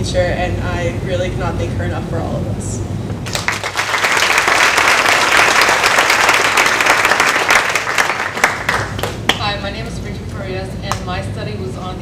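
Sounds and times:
audience applauding: 3.3s - 9.3s.

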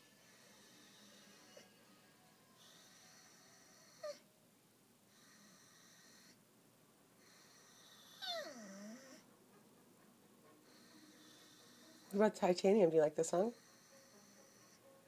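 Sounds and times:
dog howling: 2.6s - 4.2s, 7.7s - 9.2s
dog whining: 2.6s - 4.3s, 7.3s - 9.3s.

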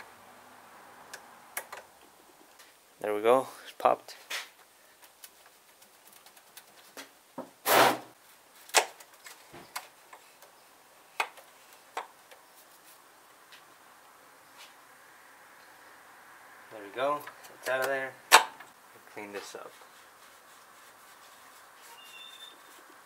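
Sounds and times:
loud scrape: 7.6s - 8.1s.

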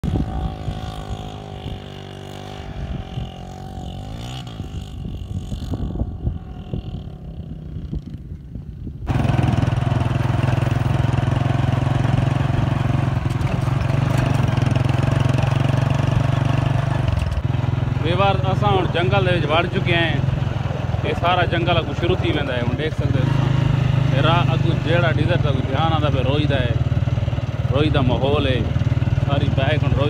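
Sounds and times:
wind noise: 0.0s - 9.8s
motorcycle engine running: 0.0s - 30.0s.

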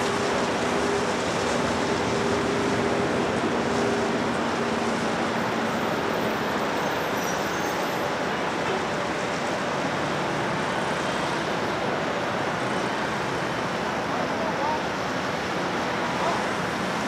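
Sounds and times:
distant jet engine rush: 0.0s - 17.0s.

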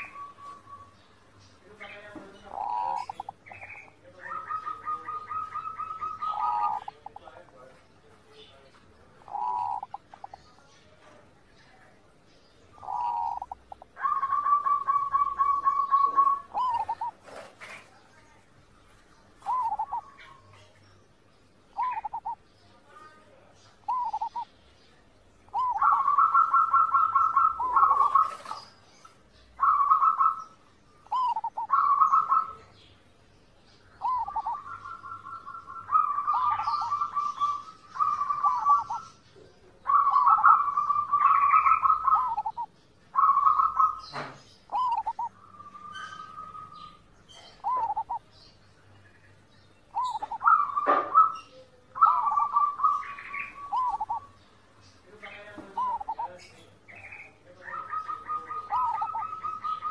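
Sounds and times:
dove cooing and trilling: 0.0s - 1.1s, 2.4s - 7.2s, 9.2s - 10.5s, 12.7s - 17.8s, 19.4s - 20.7s, 21.7s - 22.5s, 23.8s - 24.5s, 25.5s - 32.9s, 33.9s - 48.6s, 49.9s - 54.5s, 55.3s - 59.9s.

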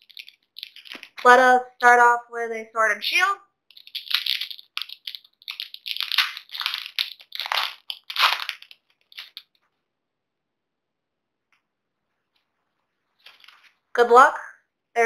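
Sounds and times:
foil wrapper crinkling and tearing: 0.0s - 1.3s, 3.7s - 9.6s.

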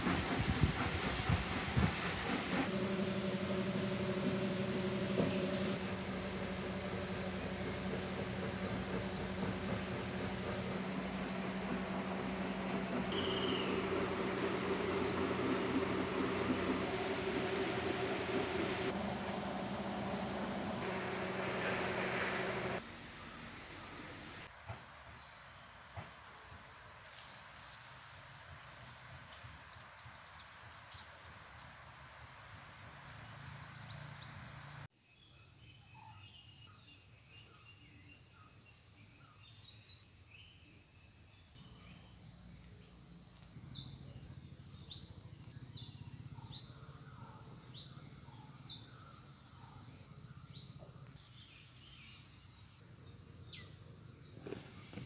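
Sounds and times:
bird chirping: 10.6s - 17.2s
high-pitched insect drone: 13.0s - 13.9s.

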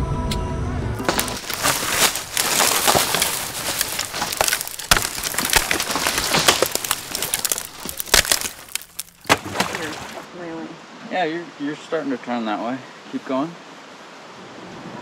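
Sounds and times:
branches scraping and snapping: 1.0s - 10.3s.

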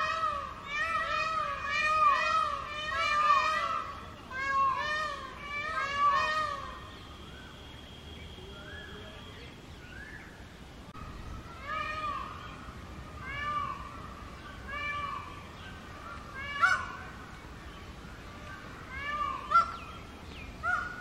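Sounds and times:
peacock screaming calls: 0.0s - 7.6s, 11.4s - 17.3s, 18.4s - 19.9s, 20.6s - 21.0s.

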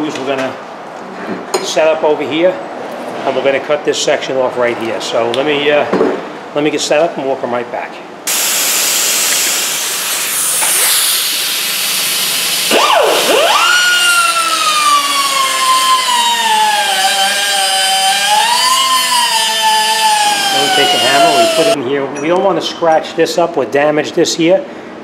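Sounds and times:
grinder cutting steel: 8.3s - 21.8s
high grinder whine: 8.3s - 21.8s.

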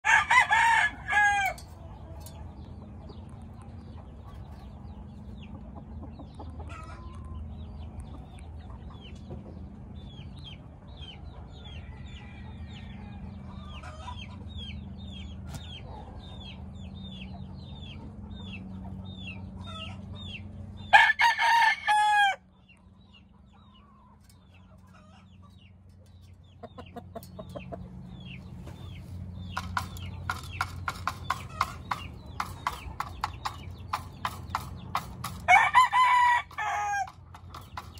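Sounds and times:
rooster crowing: 0.0s - 1.6s, 20.9s - 22.4s, 35.5s - 37.2s
steady low hum: 22.4s - 37.9s.

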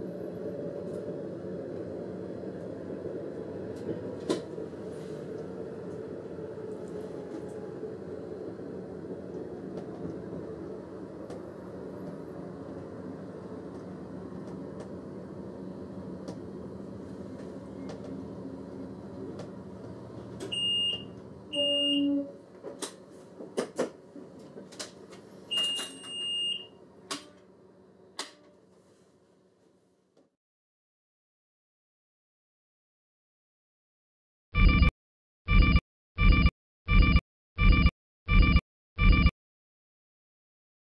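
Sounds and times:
diesel railcar humming: 0.0s - 26.2s
high electronic beeps: 34.6s - 34.9s, 35.5s - 39.3s.

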